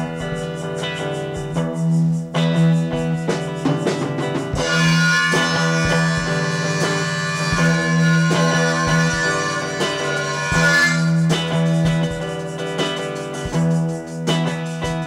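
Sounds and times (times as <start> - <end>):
instrumental background music: 0.0 - 15.0.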